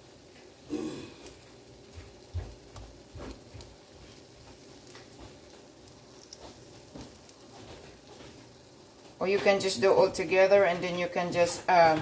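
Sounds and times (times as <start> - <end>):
batter sizzling: 0.0 - 12.0.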